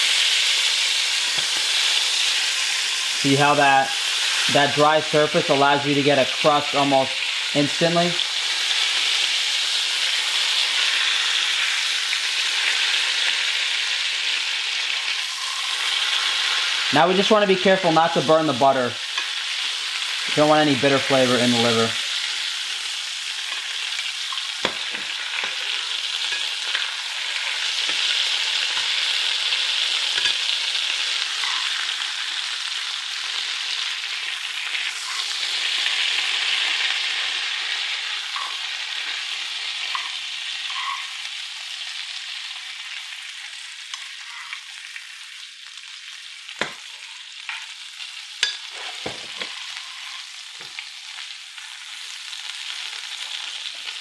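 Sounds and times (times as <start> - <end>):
meat sizzling in a pan: 0.0 - 54.0.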